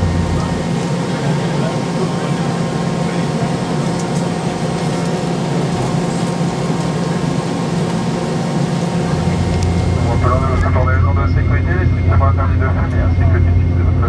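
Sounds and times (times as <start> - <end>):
deep low hum: 0.0 - 1.7, 8.8 - 14.0
aircraft cabin air rush: 0.0 - 14.0.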